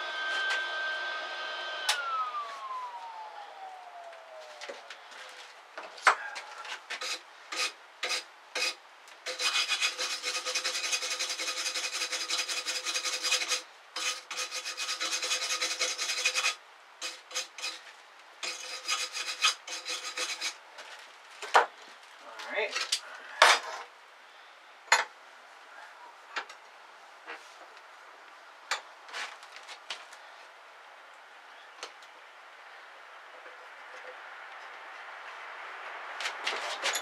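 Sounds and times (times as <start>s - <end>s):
wire brush scrubbing metal: 7.0s - 17.8s, 18.4s - 20.6s.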